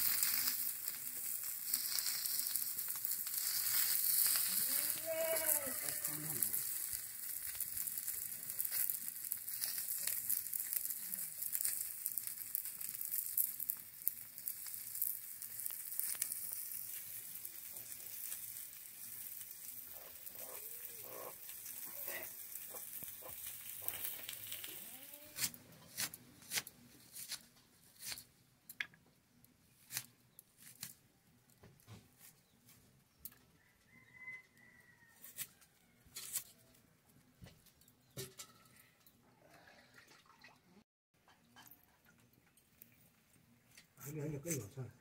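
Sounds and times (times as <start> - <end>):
fish sizzling in hot oil: 0.0 - 25.5
metal spatula turning food: 0.0 - 29.0, 35.2 - 36.6.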